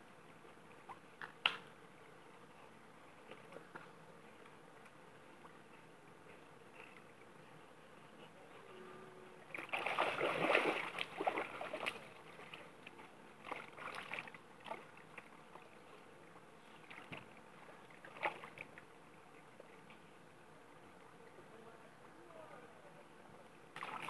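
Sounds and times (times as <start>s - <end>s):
dog splashing in water: 9.6s - 12.1s.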